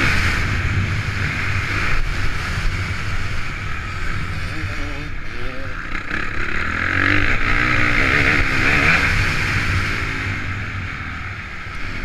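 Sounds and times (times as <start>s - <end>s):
motocross bike engine revving: 0.0s - 12.0s
wind noise: 0.0s - 12.0s.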